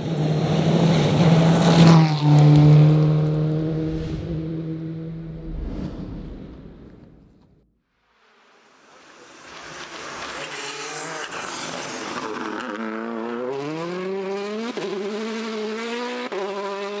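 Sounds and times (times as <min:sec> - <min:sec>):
rally car engine accelerating: 0:09.5 - 0:17.0.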